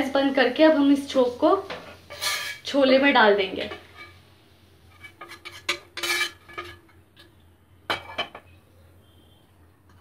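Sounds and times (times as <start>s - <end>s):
metal spoon clinking on cookware: 5.0s - 7.3s, 7.9s - 8.6s.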